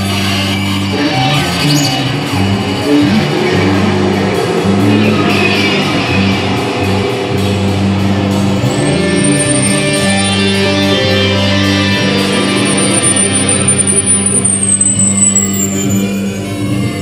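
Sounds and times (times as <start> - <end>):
experimental band music: 0.0 - 17.0
high whistling electronic tone: 8.6 - 16.5.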